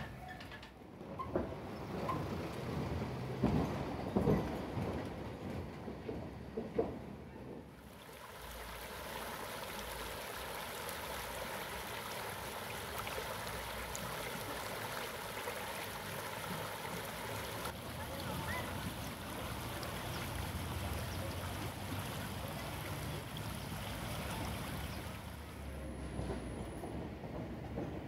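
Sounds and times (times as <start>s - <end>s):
river water rushing over stones: 7.8s - 25.7s.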